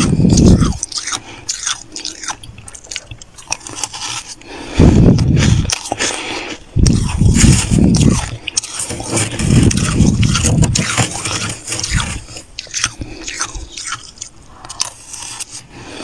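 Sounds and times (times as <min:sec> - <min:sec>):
metal spoon scraping frost: 0:05.7 - 0:15.8.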